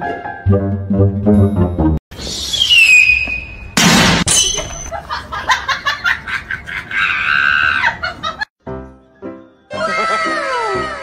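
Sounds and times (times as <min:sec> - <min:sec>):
high-pitched laughter: 0:04.9 - 0:08.5, 0:09.7 - 0:11.0.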